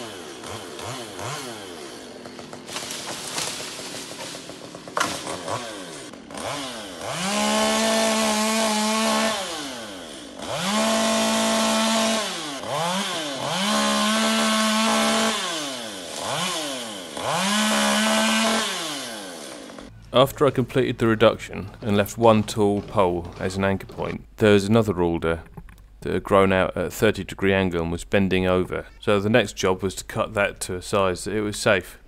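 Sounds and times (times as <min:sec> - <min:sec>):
chainsaw revving and cutting: 0:00.0 - 0:19.9.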